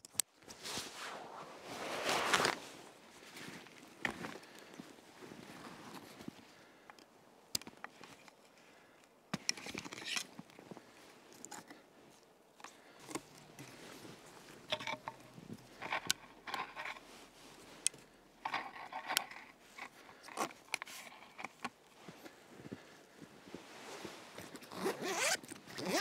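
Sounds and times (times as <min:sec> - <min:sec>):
crunching and scraping in wet snow: 0:00.5 - 0:06.4.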